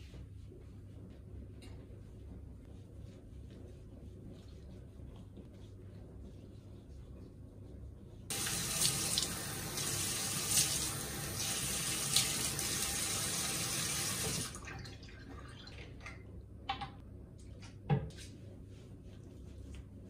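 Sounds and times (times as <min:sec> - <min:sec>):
sink tap running: 0:08.3 - 0:14.6.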